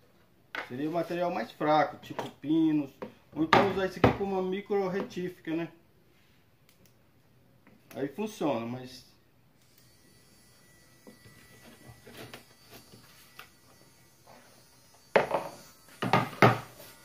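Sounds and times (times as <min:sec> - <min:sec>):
mini drill whining: 0:09.6 - 0:17.0.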